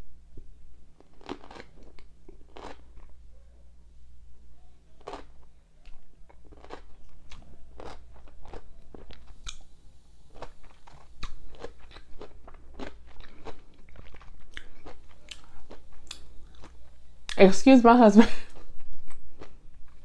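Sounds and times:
chewing crunchy pickles: 0:01.0 - 0:03.2, 0:05.0 - 0:09.7, 0:10.3 - 0:17.4, 0:18.5 - 0:20.0.

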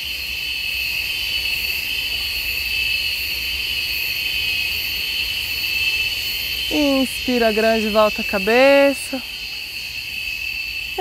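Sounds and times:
insects shrill drone: 0:00.0 - 0:11.0.

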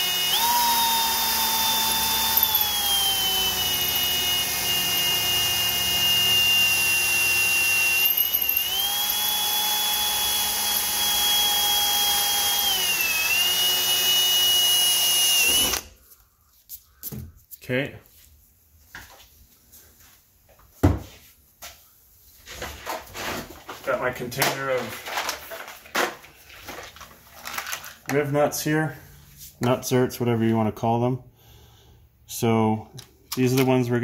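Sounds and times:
cordless drill motor whine: 0:00.0 - 0:16.0.

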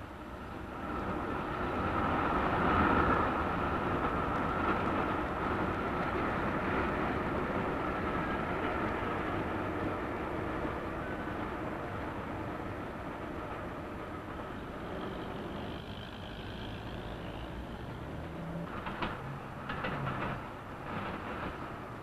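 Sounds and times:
steady vehicle rumble: 0:00.0 - 0:22.0.

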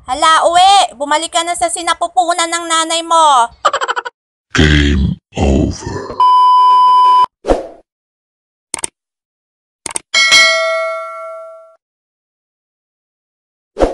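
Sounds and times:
high test beep: 0:06.2 - 0:07.3
quick clicks: 0:08.7 - 0:09.0, 0:09.8 - 0:10.1
notification bell ding: 0:10.2 - 0:11.8.

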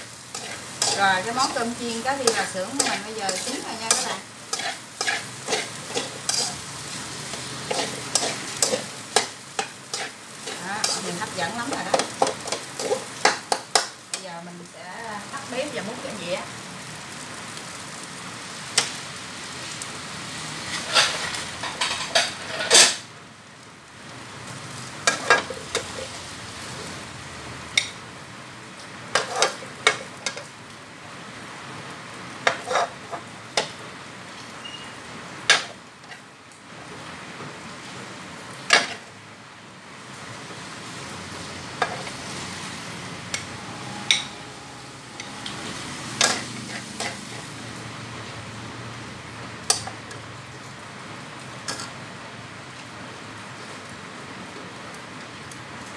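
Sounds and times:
metal spatula scraping a wok: 0:00.0 - 0:13.9, 0:20.6 - 0:23.0, 0:25.0 - 0:26.2, 0:29.1 - 0:30.4, 0:32.4 - 0:33.3, 0:41.7 - 0:47.6
faint sizzle: 0:00.0 - 0:55.9.

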